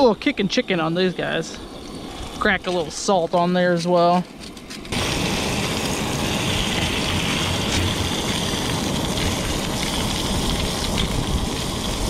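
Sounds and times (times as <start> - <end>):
low rumble: 4.8 - 12.0
fish fillets sizzling in oil: 5.0 - 12.0.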